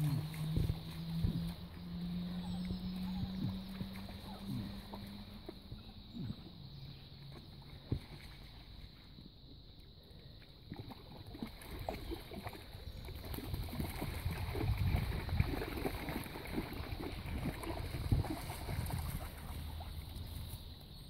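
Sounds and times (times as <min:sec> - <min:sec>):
dogs splashing in water: 0:00.0 - 0:06.5, 0:10.7 - 0:20.6.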